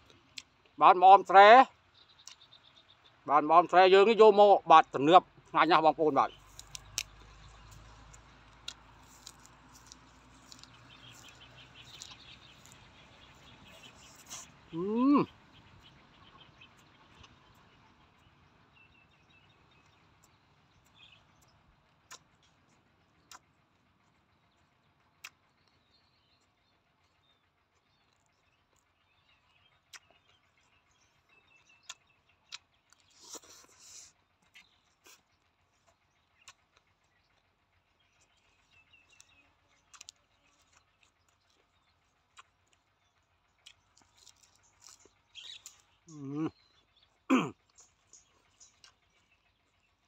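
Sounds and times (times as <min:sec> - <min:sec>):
slurping and smacking: 0:09.0 - 0:14.6, 0:32.5 - 0:35.3
faint bird chirps: 0:24.3 - 0:50.0.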